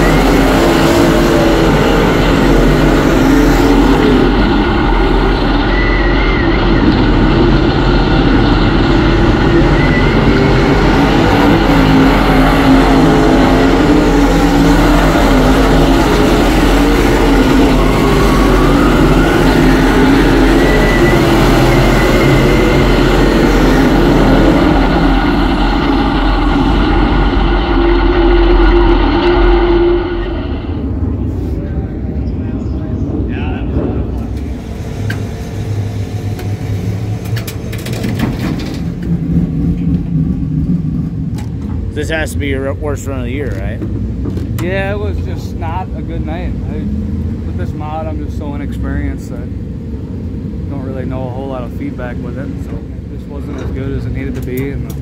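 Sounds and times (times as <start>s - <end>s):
race car engine drone: 0.0s - 55.0s.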